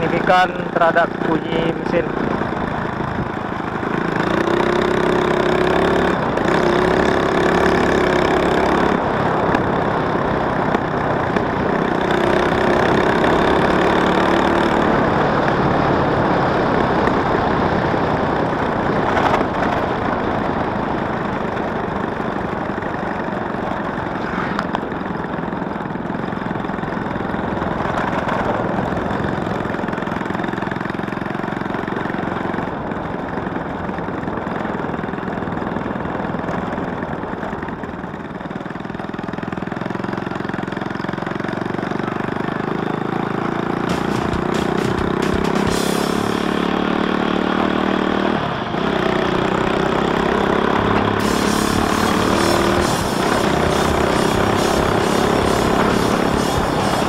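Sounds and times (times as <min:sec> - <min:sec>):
motorcycle engine running: 0:00.0 - 0:57.0
wind and road noise: 0:00.0 - 0:57.0.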